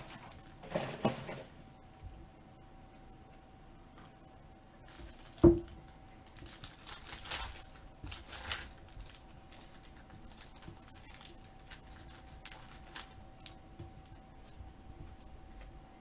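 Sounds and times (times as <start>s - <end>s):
foil wrapper tearing and crinkling: 4.9s - 13.6s.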